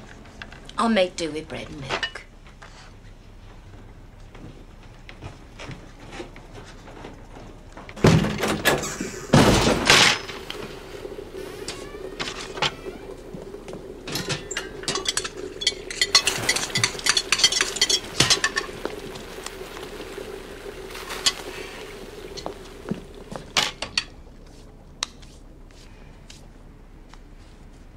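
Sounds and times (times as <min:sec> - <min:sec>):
steady low hum: 0:00.0 - 0:27.9
crockery and cutlery clinking: 0:14.1 - 0:19.1.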